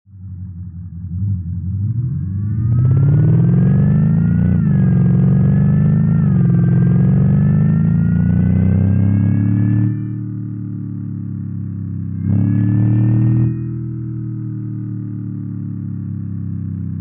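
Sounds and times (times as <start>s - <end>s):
synthesized engine exhaust note: 0.1s - 17.0s.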